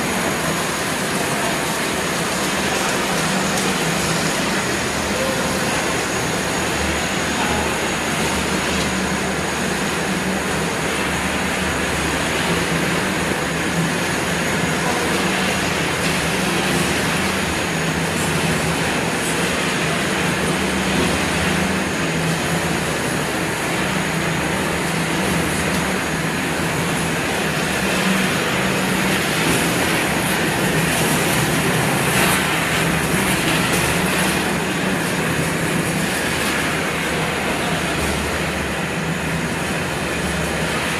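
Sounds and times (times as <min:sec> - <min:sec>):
production line machinery din: 0:00.0 - 0:40.9.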